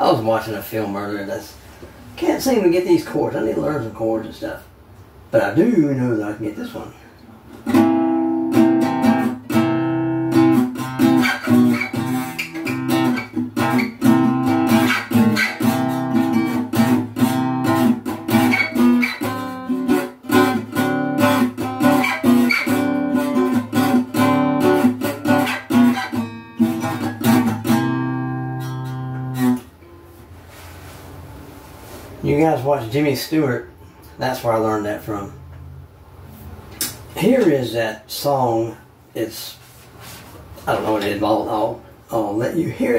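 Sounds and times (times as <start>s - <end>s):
acoustic guitar picked tune: 7.6s - 32.0s.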